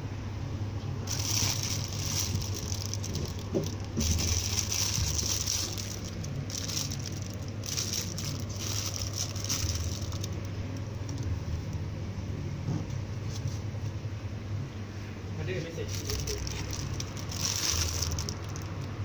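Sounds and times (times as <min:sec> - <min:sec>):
plastic wrapping crinkling: 0:01.1 - 0:11.8, 0:15.8 - 0:19.0.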